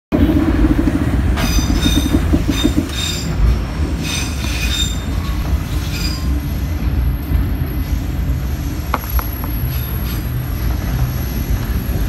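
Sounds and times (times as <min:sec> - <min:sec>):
train carriage rumble: 0:00.1 - 0:12.0
train wheels squealing: 0:01.4 - 0:06.8, 0:09.0 - 0:12.0.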